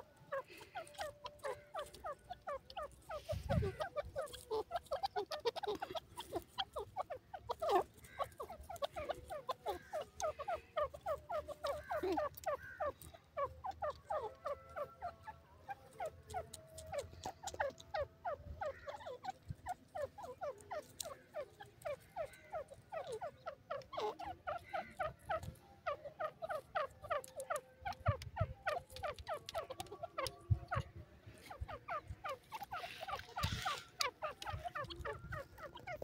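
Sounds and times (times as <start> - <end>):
francolin clucking calls: 0.0 - 36.0.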